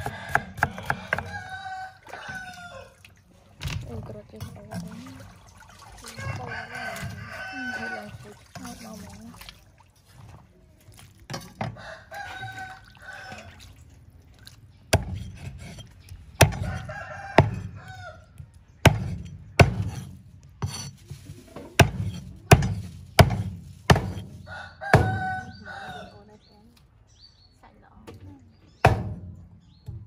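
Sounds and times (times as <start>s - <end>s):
cleaver chopping on wooden block: 0.0s - 1.4s, 14.9s - 15.5s, 16.4s - 16.8s, 18.8s - 20.9s, 21.8s - 24.3s
chickens calling: 0.0s - 3.1s, 11.7s - 13.8s, 24.4s - 26.4s.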